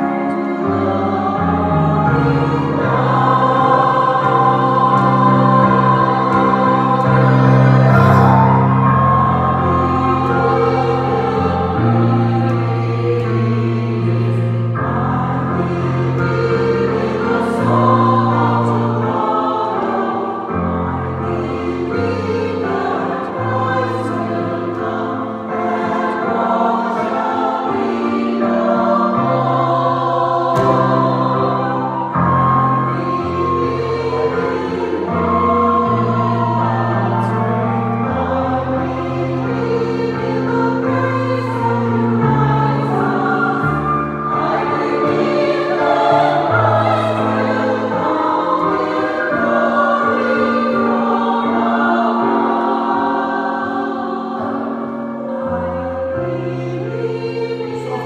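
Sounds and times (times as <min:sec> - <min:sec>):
choir singing: 0:00.0 - 0:58.0
long held low notes: 0:07.7 - 0:10.6.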